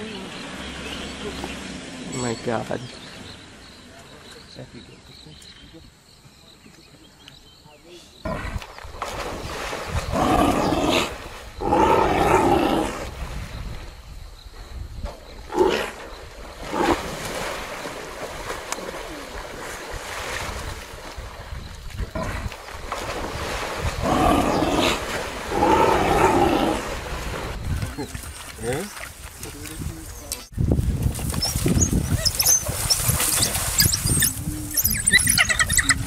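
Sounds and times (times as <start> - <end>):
water splashing and churning: 8.3 - 12.2, 15.8 - 36.0
lions growling and snarling: 9.9 - 13.2, 15.4 - 17.4, 22.0 - 28.2.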